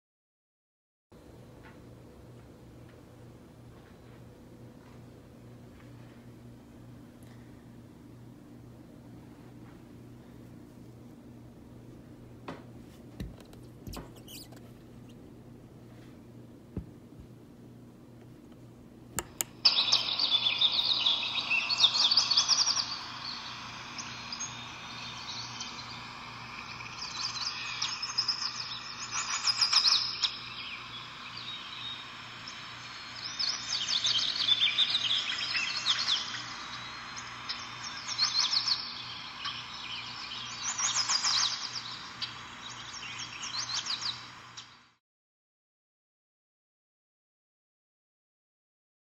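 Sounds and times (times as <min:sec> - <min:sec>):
recorded songbird chirps: 0:13.7 - 0:15.3, 0:19.2 - 0:45.0.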